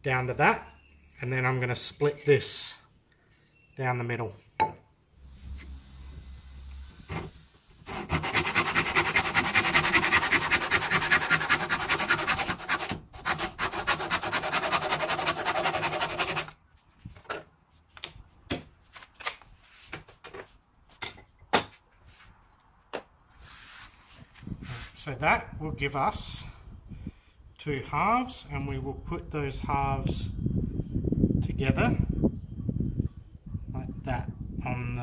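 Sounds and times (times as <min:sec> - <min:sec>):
hand saw cutting wood: 0:07.1 - 0:16.6.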